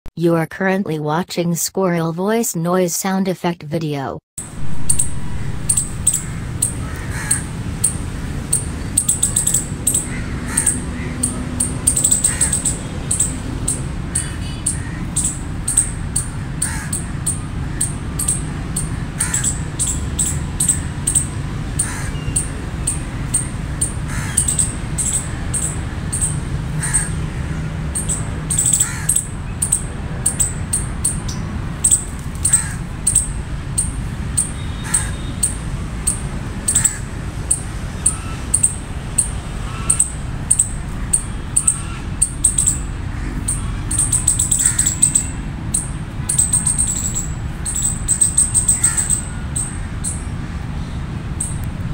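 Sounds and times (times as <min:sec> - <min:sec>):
low rumble: 0:04.4 - 0:08.4, 0:51.4 - 0:51.9
high-pitched chirps: 0:04.4 - 0:16.3, 0:43.5 - 0:50.2, 0:51.4 - 0:51.9
crow cawing: 0:04.9 - 0:13.3, 0:14.1 - 0:21.0, 0:21.7 - 0:29.8, 0:31.9 - 0:33.3, 0:34.7 - 0:35.6, 0:36.6 - 0:37.1, 0:39.6 - 0:50.3.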